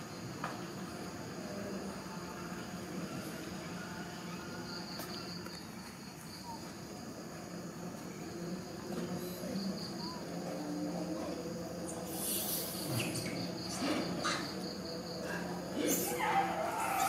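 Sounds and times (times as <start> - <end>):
insects chirping in high trill: 0.0 - 17.0
short falling squeal: 15.9 - 17.0.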